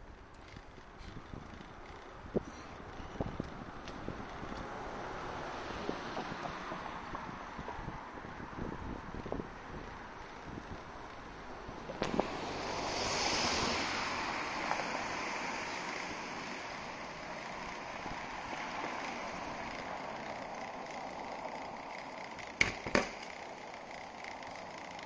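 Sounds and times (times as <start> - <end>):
tyre and road noise: 0.0 - 25.0
car overtaking: 0.5 - 25.0
wind on microphone: 1.0 - 11.0, 11.6 - 19.7.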